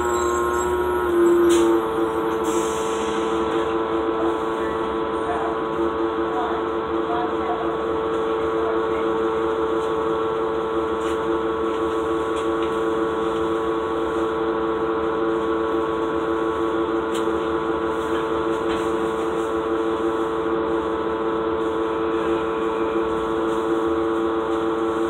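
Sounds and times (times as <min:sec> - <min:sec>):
two-note engine whine: 0:00.0 - 0:02.6
bus diesel engine drone: 0:00.0 - 0:25.0.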